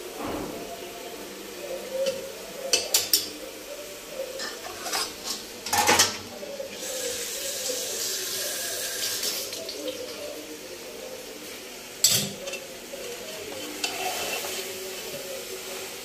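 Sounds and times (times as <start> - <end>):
kitchen tap running: 6.7 - 10.4.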